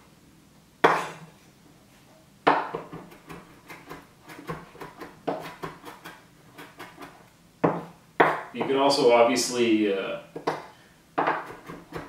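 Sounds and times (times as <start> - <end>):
knife chopping on wooden board: 0.8 - 1.2, 2.5 - 8.7, 10.4 - 12.0.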